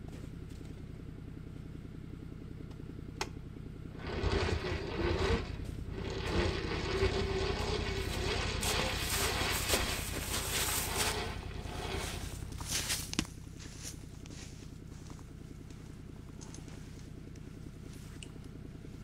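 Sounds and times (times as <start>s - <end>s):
engine idling: 0.0s - 19.0s
click: 2.7s - 3.4s
electric winch running under load: 3.7s - 13.2s.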